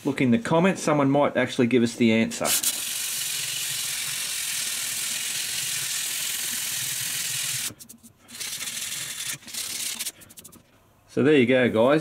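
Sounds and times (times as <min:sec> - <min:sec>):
sandpaper rubbing on metal: 0:02.5 - 0:10.6.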